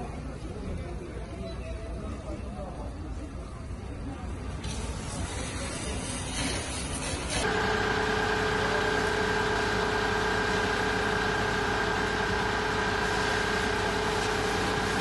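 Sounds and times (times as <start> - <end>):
fire engine running with whine: 4.3 - 15.0
hose spraying water: 4.6 - 15.0.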